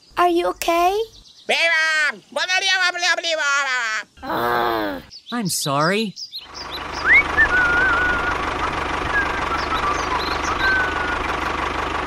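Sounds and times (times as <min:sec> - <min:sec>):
birds chirping: 0:00.0 - 0:11.6
tractor engine chugging: 0:06.5 - 0:12.0.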